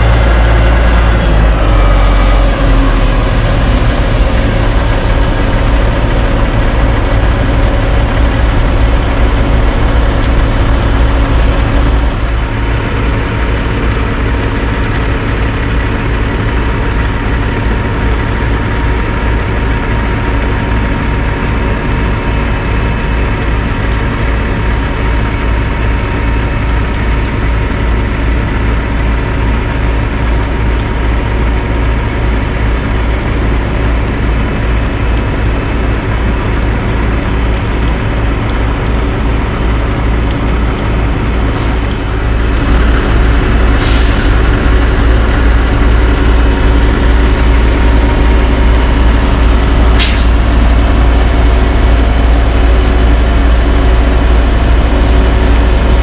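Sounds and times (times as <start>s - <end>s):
heavy diesel engines running: 0.0s - 56.0s.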